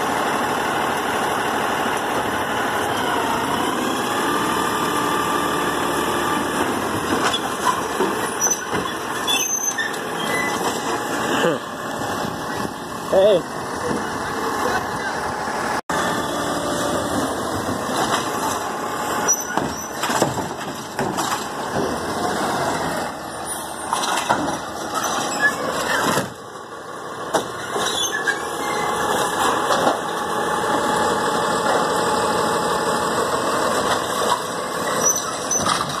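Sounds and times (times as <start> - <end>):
garbage truck engine running: 0.0 - 36.0
hydraulic whine and squeal: 7.2 - 10.8, 19.2 - 20.1, 24.8 - 26.2, 27.6 - 29.2, 34.8 - 36.0
trash cart clanking against hopper: 16.8 - 32.2, 33.6 - 36.0.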